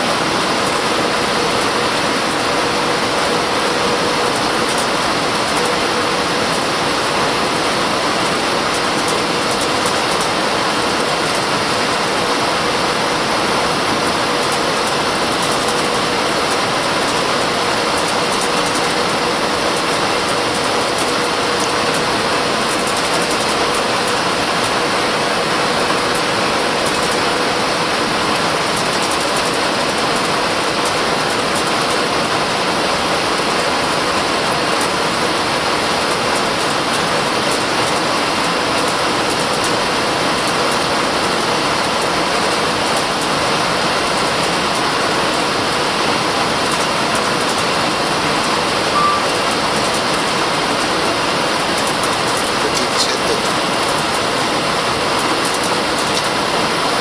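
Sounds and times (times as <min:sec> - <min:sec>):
airliner cabin engine rush: 0:00.0 - 0:57.0
thin steady tone: 0:48.9 - 0:49.7.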